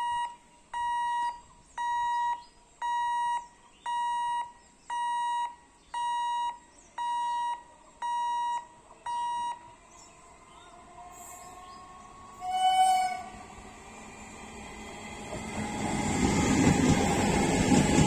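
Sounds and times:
level crossing warning beeps: 0:00.0 - 0:09.8.

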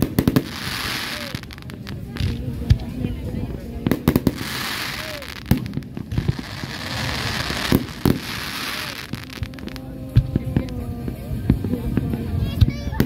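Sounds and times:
fireworks bangs: 0:00.0 - 0:13.0
hissing crackle of fireworks: 0:00.0 - 0:13.0.

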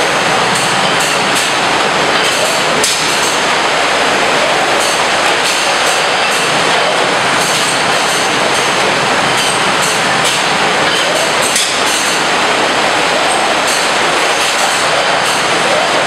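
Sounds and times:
loud steady mechanical rush: 0:00.0 - 0:16.0.

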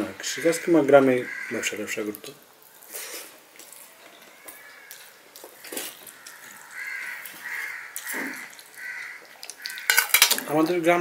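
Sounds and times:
bird calling: 0:03.7 - 0:10.0.

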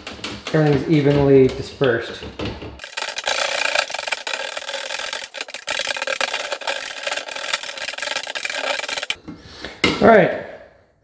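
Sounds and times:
stick stirring paint in metal can: 0:02.8 - 0:09.2.

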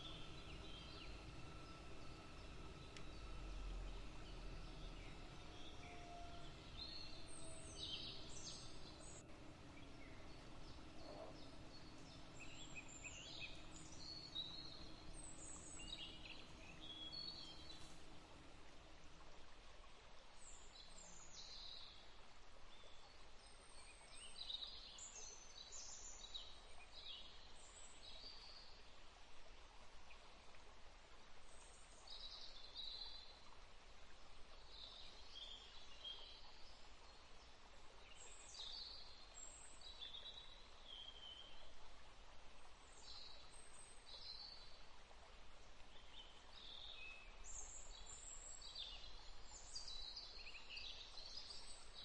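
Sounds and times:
faint bird chirps: 0:00.0 - 0:18.5
low background hiss: 0:00.0 - 0:52.0.

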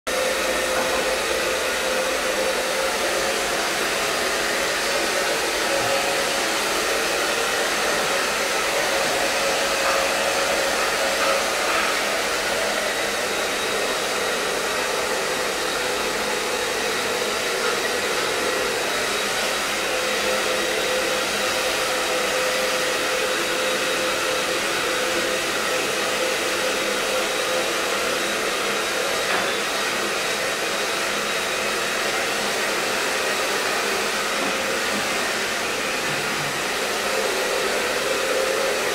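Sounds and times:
hair dryer running: 0:00.1 - 0:38.9.

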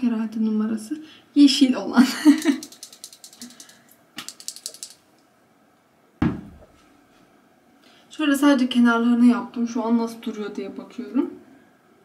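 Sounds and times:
eyeliner pencil ratcheting clicks: 0:02.4 - 0:05.0
loud thump: 0:06.2 - 0:06.7.

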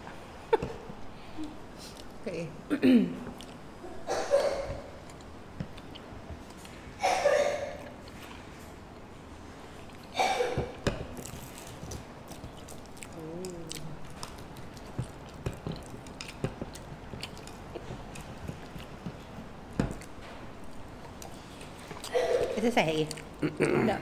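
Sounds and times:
crunchy chewing: 0:11.1 - 0:22.2, 0:22.9 - 0:23.5.

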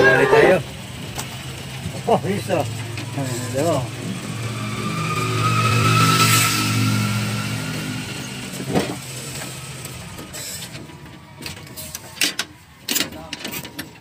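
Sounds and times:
vehicle engine passing by: 0:00.0 - 0:10.8.

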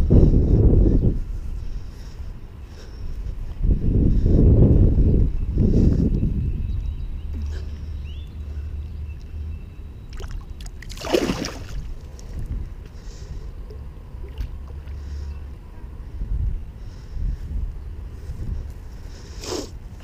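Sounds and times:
wind rumble on microphone: 0:00.0 - 0:20.0
fish splash in water: 0:10.2 - 0:11.9.

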